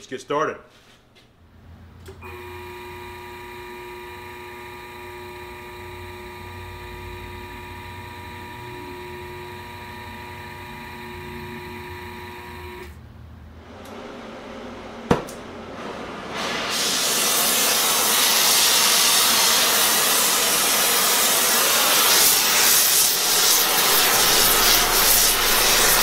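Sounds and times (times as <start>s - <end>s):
motor whine over low hum: 2.2s - 13.0s, 21.7s - 26.0s.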